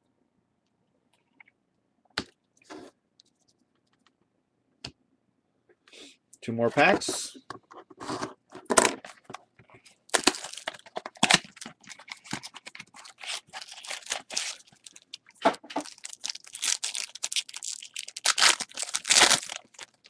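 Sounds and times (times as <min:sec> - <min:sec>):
foil wrapper tearing and crinkling: 0:10.1 - 0:20.0.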